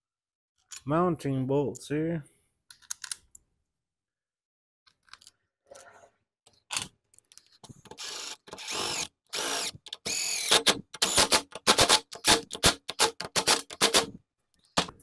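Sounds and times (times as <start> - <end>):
cordless driver running bolts: 7.9 - 14.1.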